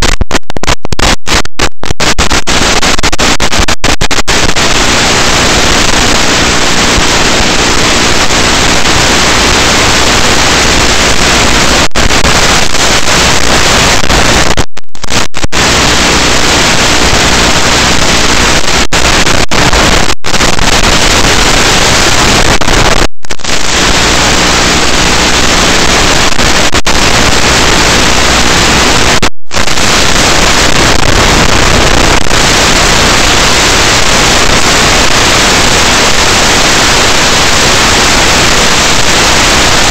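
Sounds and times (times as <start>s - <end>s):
static hiss: 0.0s - 39.9s.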